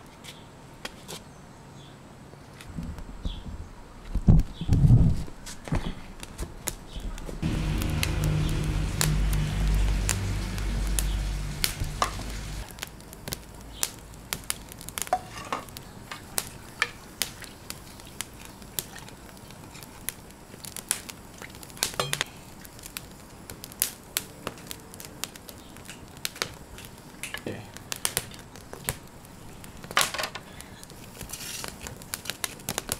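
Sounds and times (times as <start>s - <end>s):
fire crackling: 4.4s - 32.9s
background music: 7.4s - 12.6s
onions sizzling in a pot: 7.4s - 32.9s.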